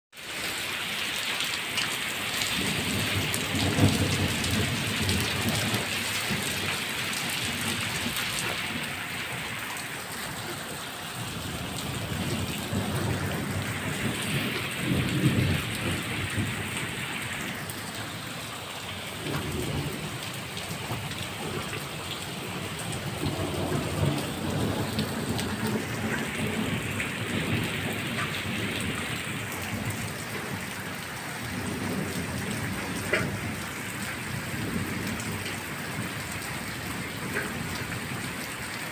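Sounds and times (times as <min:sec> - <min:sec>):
rain on pavement and rooftops: 0:00.1 - 0:38.9.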